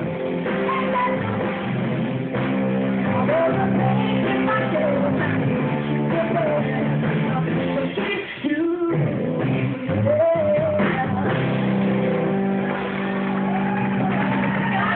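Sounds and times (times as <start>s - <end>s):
rock band playing: 0.0s - 14.9s
woman singing: 0.5s - 1.8s, 3.0s - 11.8s.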